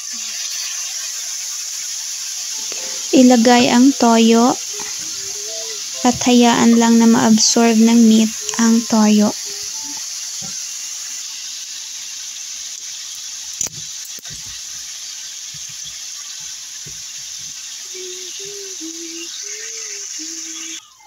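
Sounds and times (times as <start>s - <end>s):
pork sizzling in wok: 0.0s - 21.0s.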